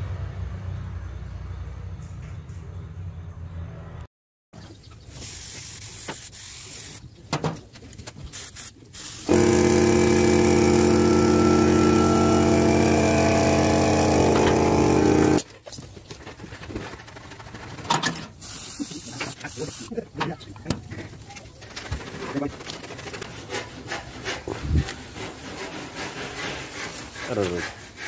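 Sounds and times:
machine buzzing hum: 0:09.3 - 0:15.4.

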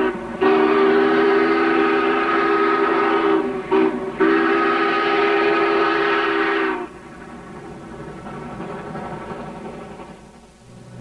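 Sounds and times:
steam locomotive chime whistle: 0:00.0 - 0:07.0.

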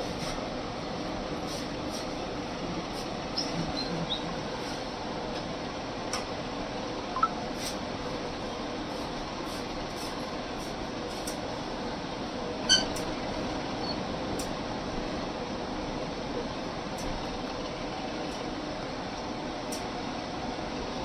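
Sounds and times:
background hum and hiss: 0:00.0 - 0:21.0
short high-pitched squeak: 0:12.7 - 0:13.0.

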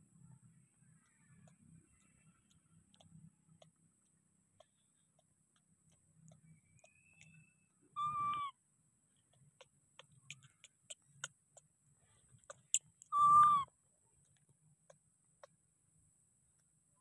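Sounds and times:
faint clicks: 0:00.9 - 0:07.6, 0:09.1 - 0:11.7
baby macaque coo calls: 0:08.0 - 0:08.5, 0:13.1 - 0:13.7.

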